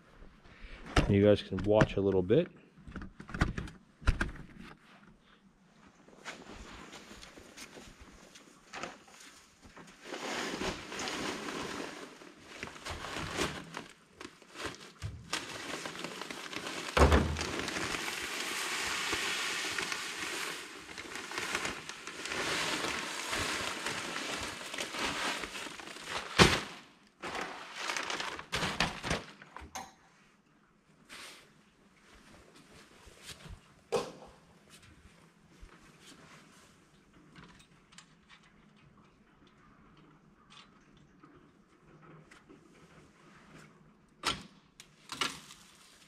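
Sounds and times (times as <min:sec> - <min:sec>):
plastic bag crinkling: 0:10.0 - 0:29.6, 0:45.1 - 0:46.0
flakes pouring hiss: 0:15.4 - 0:28.4.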